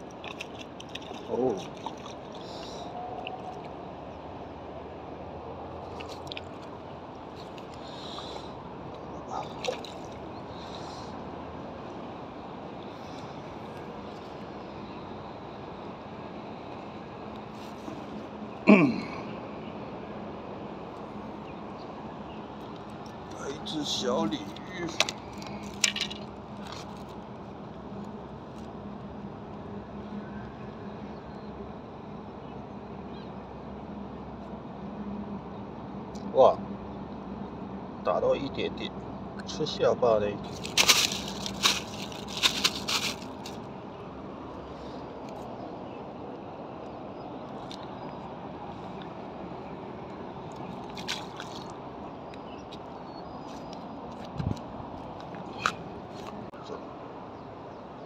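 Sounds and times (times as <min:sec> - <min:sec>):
small water sounds: 0:00.0 - 0:04.3, 0:05.7 - 0:14.8, 0:40.4 - 0:56.4
outdoor background rumble: 0:00.0 - 0:58.0.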